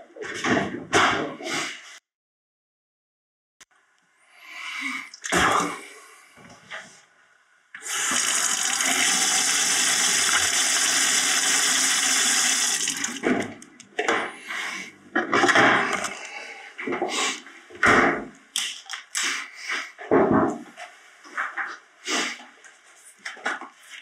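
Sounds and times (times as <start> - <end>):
tap water running into sink: 7.8 - 13.6.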